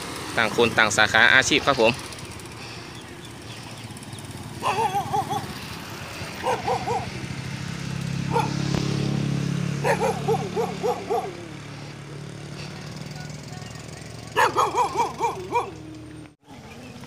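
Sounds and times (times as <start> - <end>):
motorbike engine hum: 0.0 - 17.0
dog barking: 4.6 - 5.6, 6.4 - 7.2, 8.3 - 8.7, 9.8 - 11.5, 14.3 - 15.9.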